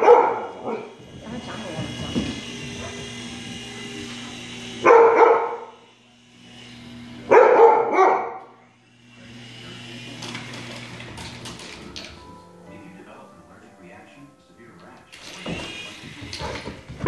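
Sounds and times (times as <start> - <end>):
puppy barking: 0.0 - 1.0, 4.8 - 5.7, 7.3 - 8.5.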